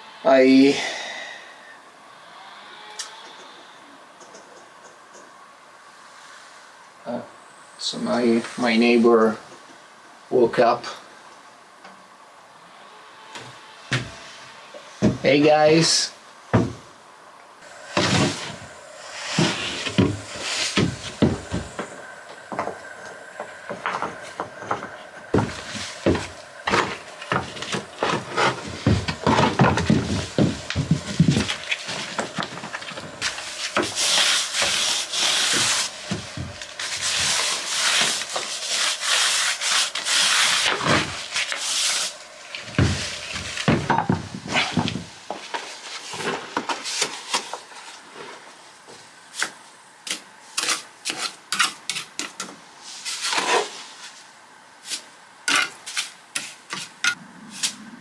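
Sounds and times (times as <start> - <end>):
gloved hand brushing floor boards: 17.9 - 48.5.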